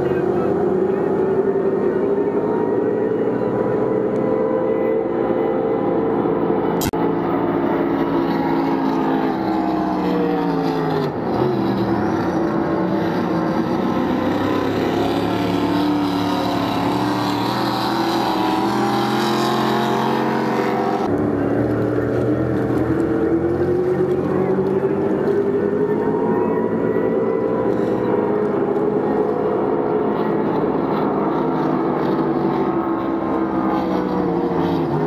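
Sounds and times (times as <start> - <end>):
race boat engines running hard: 0.0 - 35.0.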